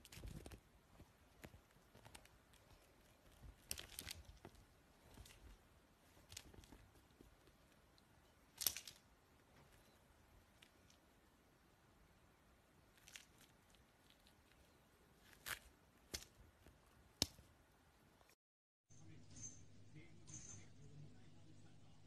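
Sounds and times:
kitten rustling a string toy: 0.0s - 11.0s.

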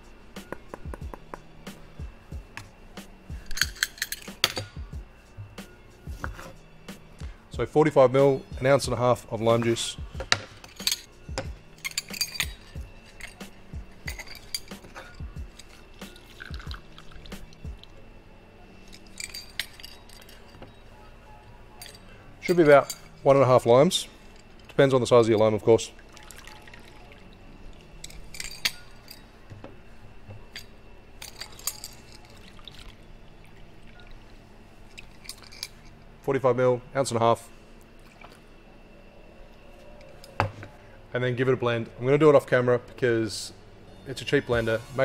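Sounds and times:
background music with steady beat: 0.0s - 36.2s, 37.4s - 45.0s
metal clinks: 3.4s - 4.8s, 9.7s - 17.8s, 18.8s - 20.8s, 21.7s - 23.3s, 28.0s - 29.3s, 30.3s - 32.6s, 34.9s - 36.0s
juice dripping into metal jigger: 16.0s - 18.0s, 24.5s - 28.1s, 32.2s - 34.3s.

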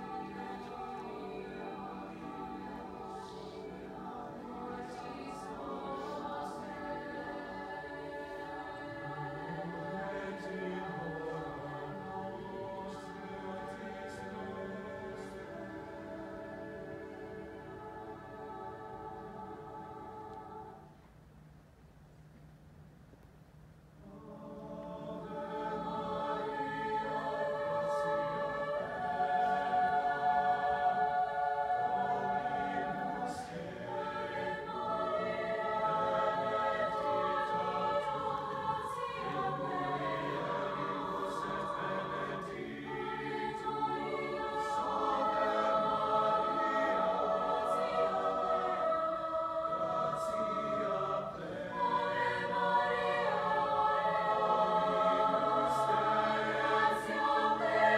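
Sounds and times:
mixed choir singing: 0.0s - 20.9s, 24.0s - 57.9s.

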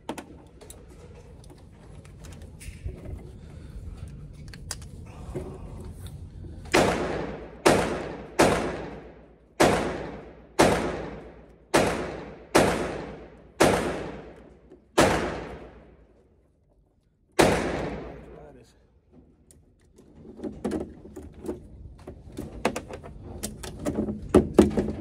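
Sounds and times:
pistol shots ringing indoors: 6.7s - 16.1s, 17.4s - 18.3s.

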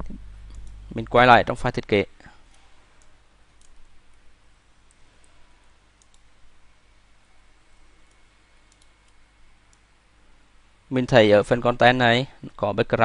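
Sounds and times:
steady low hiss: 0.0s - 13.0s
computer mouse clicks: 2.5s - 3.9s, 6.0s - 6.3s, 8.0s - 9.9s.

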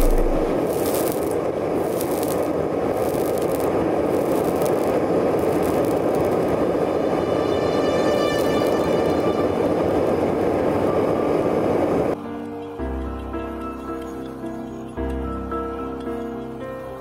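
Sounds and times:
forge burners hissing: 0.0s - 12.2s.

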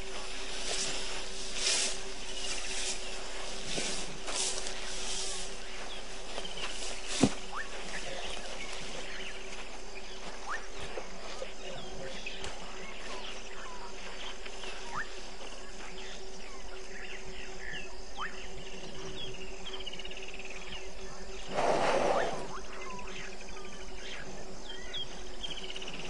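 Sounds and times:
insect trill: 0.0s - 26.0s
low hum: 0.0s - 26.0s.

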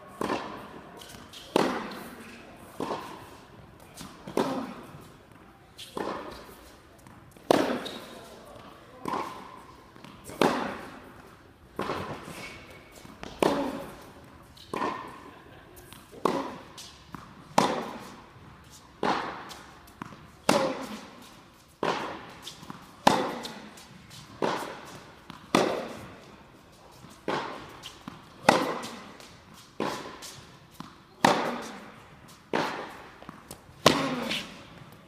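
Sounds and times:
tennis ball hit by racket: 0.1s - 15.3s, 15.9s - 26.3s, 26.9s - 35.0s
ball bouncing on hard court: 6.0s - 8.1s, 9.0s - 14.1s, 15.9s - 21.1s, 21.8s - 26.2s, 27.2s - 35.0s.

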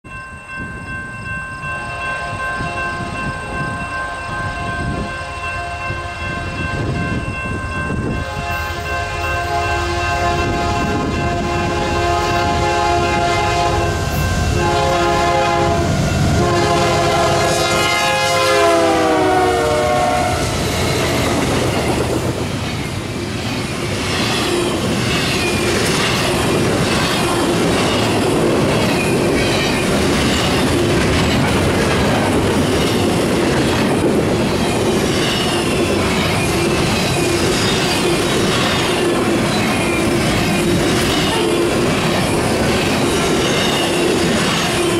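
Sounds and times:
train cars rumbling: 0.1s - 44.9s
locomotive air horn: 8.2s - 20.6s, 41.2s - 41.8s.

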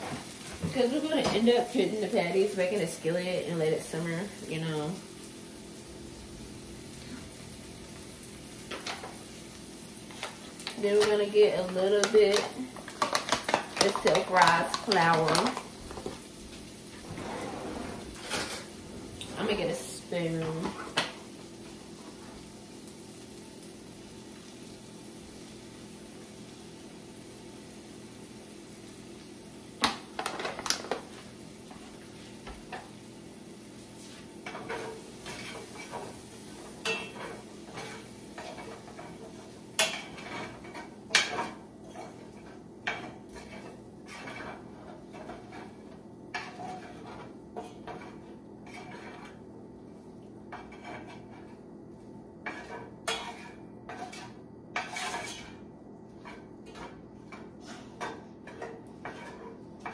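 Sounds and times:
faint sizzle: 0.0s - 59.9s
spoon scraping a skillet: 34.0s - 51.6s, 52.4s - 59.9s.

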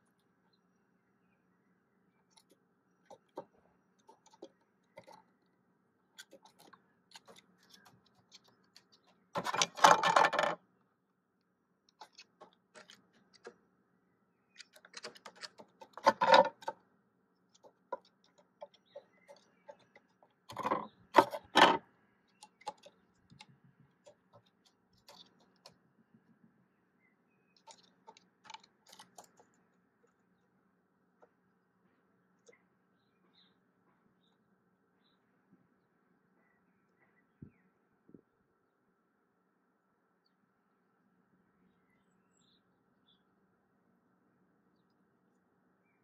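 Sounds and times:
bird claws and beak tapping wood: 2.3s - 5.2s, 6.2s - 10.6s, 11.9s - 13.6s, 14.6s - 16.8s, 17.5s - 25.8s, 27.6s - 29.6s
knocking and scraping on wood: 6.2s - 10.6s, 14.7s - 16.8s, 17.9s - 21.8s.

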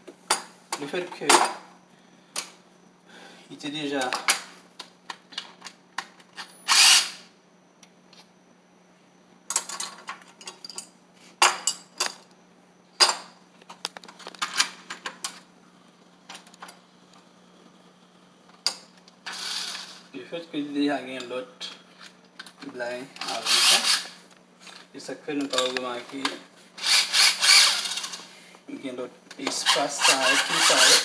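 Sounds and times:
cordless drill running: 6.7s - 7.2s, 23.3s - 24.2s, 26.8s - 28.1s, 29.6s - 31.0s.

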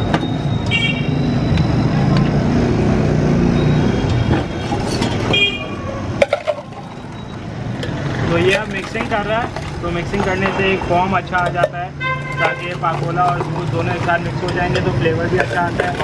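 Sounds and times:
street traffic rumbling: 0.0s - 16.0s
metal mugs clinking: 6.2s - 16.0s
horn toots: 12.0s - 12.8s.

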